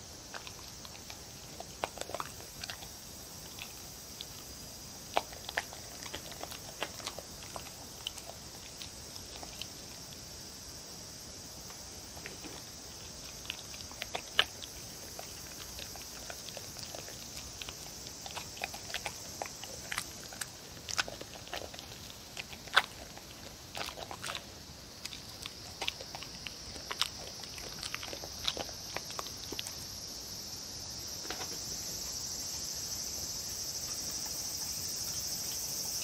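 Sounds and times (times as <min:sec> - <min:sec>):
chewing clicks: 0:00.1 - 0:30.0
dog mouth smacks and licks: 0:00.2 - 0:10.2, 0:11.6 - 0:29.9.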